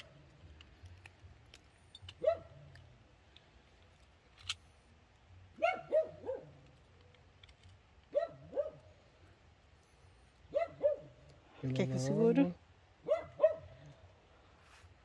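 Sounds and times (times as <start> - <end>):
dog barking: 2.2 - 2.6, 5.6 - 6.6, 8.1 - 8.9, 10.5 - 11.2, 13.0 - 13.8.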